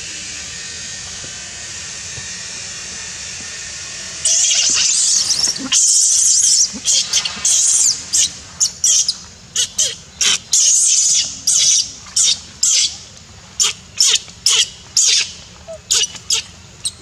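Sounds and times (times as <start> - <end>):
baby monkey squealing: 4.3 - 12.9, 13.6 - 17.0.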